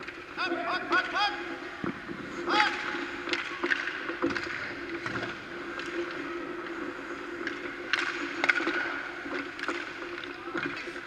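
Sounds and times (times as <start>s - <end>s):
sticks and pucks clicking: 0.0s - 0.3s, 2.4s - 11.0s
skates scraping on ice: 0.0s - 11.0s.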